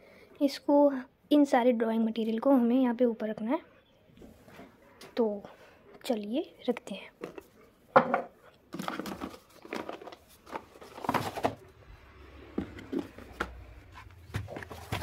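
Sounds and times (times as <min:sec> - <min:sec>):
items knocking on wooden table: 0:07.9 - 0:09.3
rustling of handled items: 0:08.4 - 0:11.8, 0:12.4 - 0:15.0.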